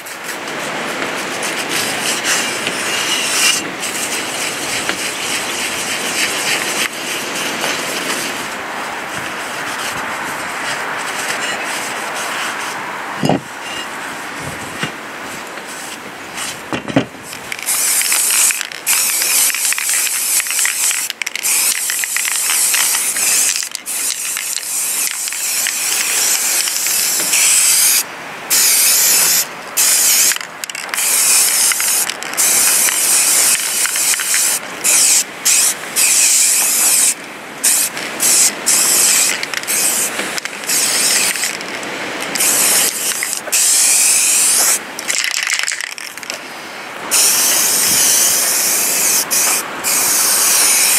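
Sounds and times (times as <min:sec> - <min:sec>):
spray paint can hissing: 0:01.8 - 0:07.0, 0:17.4 - 0:41.6, 0:42.4 - 0:46.2, 0:47.1 - 0:50.9.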